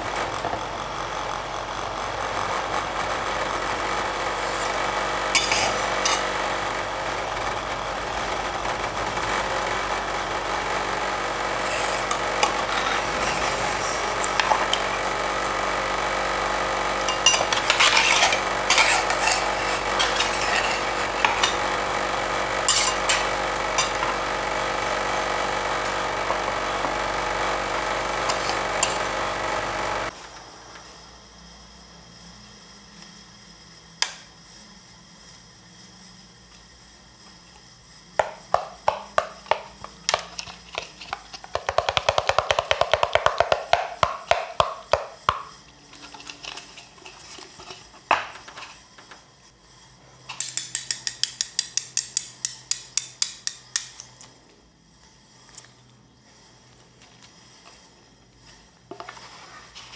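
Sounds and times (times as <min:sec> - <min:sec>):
refrigeration unit humming: 0:00.0 - 0:59.9
metal spatulas scraping on plate: 0:05.4 - 0:06.2, 0:17.1 - 0:20.9, 0:22.7 - 0:23.2.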